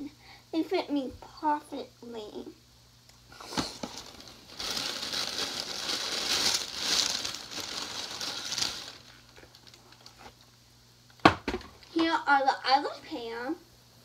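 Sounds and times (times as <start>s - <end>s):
packaging rustling and crinkling: 3.4s - 10.5s
knocks on packaging: 11.2s - 11.7s.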